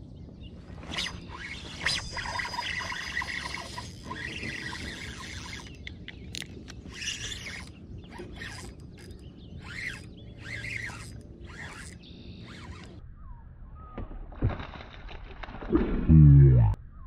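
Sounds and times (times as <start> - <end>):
fishing reel whirring: 0.9 - 13.0.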